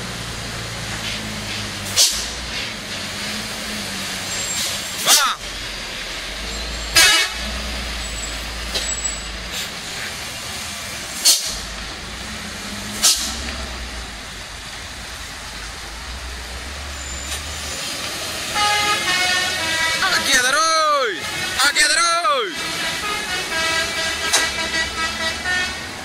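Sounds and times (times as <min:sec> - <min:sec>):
diesel truck engine rumble: 0:00.0 - 0:26.0
air brake hisses: 0:01.0 - 0:02.8, 0:08.3 - 0:10.2, 0:11.2 - 0:11.6, 0:12.9 - 0:13.5
truck horn toot: 0:06.6 - 0:09.3, 0:18.4 - 0:26.0.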